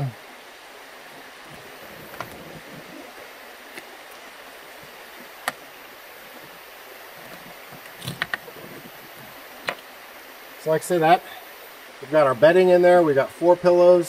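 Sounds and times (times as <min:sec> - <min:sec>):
rooftop tent clicks and knocks: 0:07.2 - 0:08.5.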